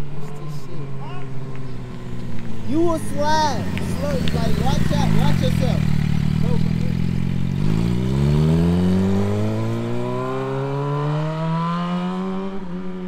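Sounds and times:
motorcycle engine accelerating: 0:00.4 - 0:13.0.

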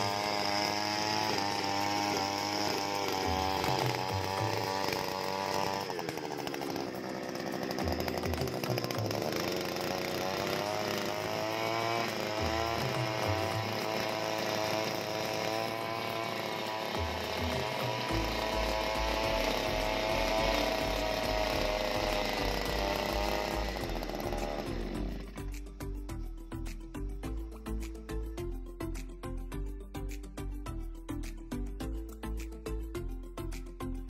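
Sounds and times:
two-stroke engine revving: 0:00.0 - 0:28.0.

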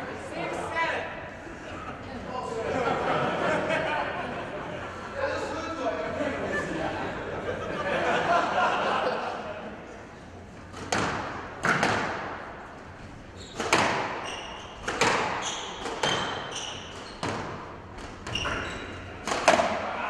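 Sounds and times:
squash racket strikes: 0:10.7 - 0:12.8, 0:13.4 - 0:20.0
ball hitting wall: 0:10.8 - 0:12.4, 0:14.8 - 0:16.4, 0:19.2 - 0:19.9
shoes squeaking on court floor: 0:13.0 - 0:19.6.

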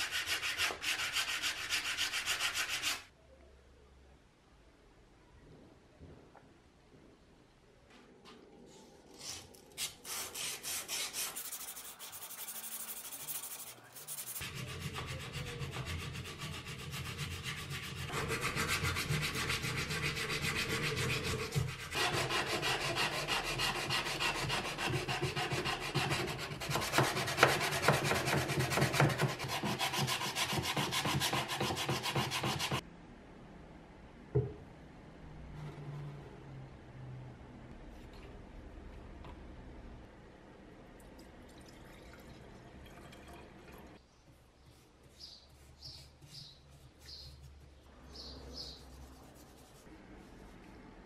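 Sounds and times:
sandpaper rubbing metal: 0:09.2 - 0:32.8.

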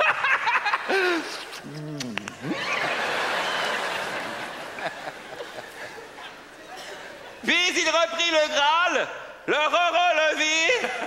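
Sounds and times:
studio audience laughing: 0:00.0 - 0:01.0, 0:02.5 - 0:06.5.

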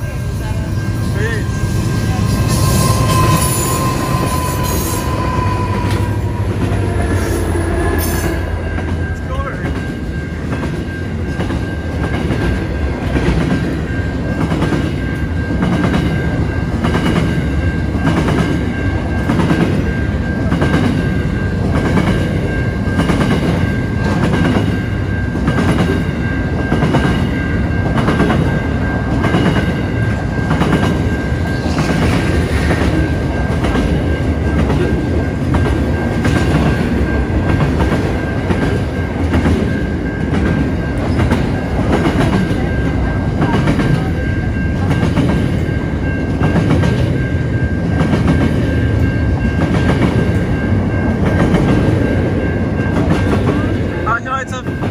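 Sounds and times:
thin steady high tone: 0:00.0 - 0:11.9
train wheels rumbling on rail: 0:00.0 - 0:54.9
clickety-clack over rail joints: 0:31.7 - 0:47.2.

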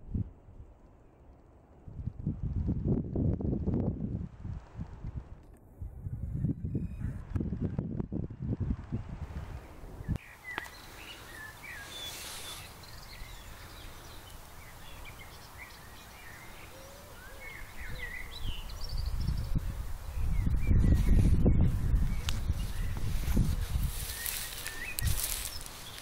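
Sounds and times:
wind rumble on microphone: 0:00.0 - 0:00.8, 0:01.6 - 0:10.2, 0:17.4 - 0:26.0
songbirds chirping: 0:06.4 - 0:26.0.

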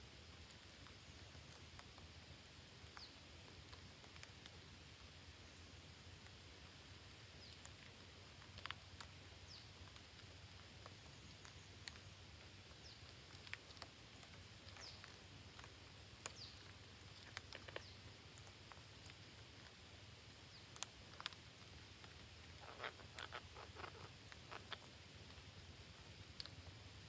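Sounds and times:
faint clicks and rustles: 0:00.0 - 0:27.0
parrots chirping: 0:22.0 - 0:24.9.

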